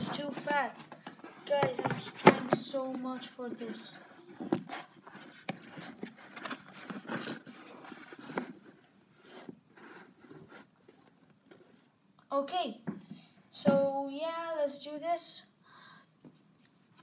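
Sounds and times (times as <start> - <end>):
camera scraping and rustling on paper: 3.6 - 11.7.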